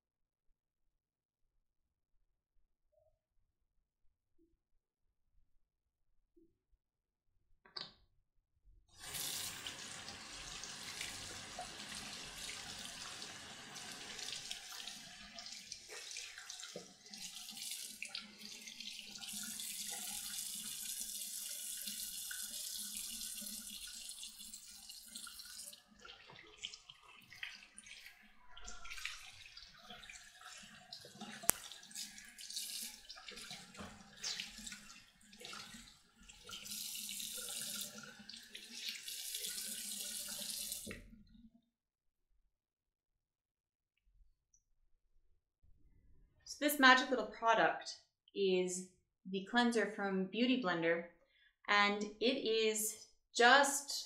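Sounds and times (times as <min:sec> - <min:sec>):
faucet water running into basin: 0:08.9 - 0:41.1.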